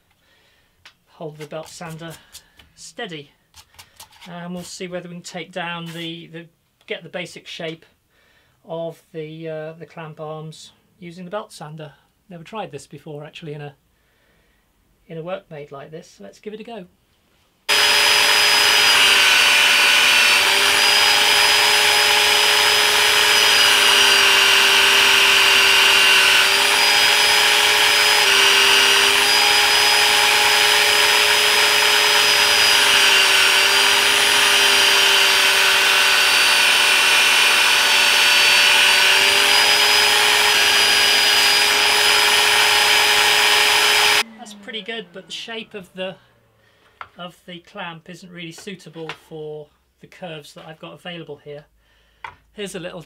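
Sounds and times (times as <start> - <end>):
electric belt sander running: 17.7 - 45.8.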